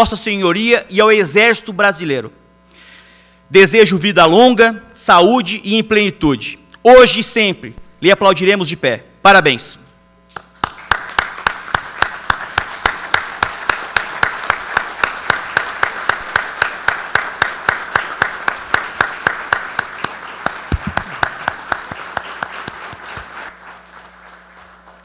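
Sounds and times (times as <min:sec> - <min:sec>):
sharp close claps: 0:10.3 - 0:25.0
audience applauding: 0:10.4 - 0:25.0.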